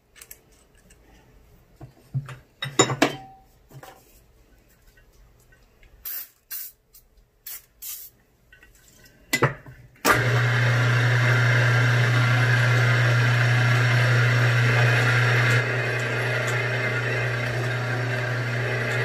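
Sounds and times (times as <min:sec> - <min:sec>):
milling machine motor humming: 0:10.1 - 0:19.0.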